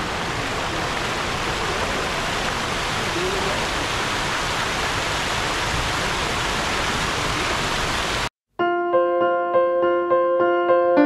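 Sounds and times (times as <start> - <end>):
fountain water splashing: 0.0 - 8.3.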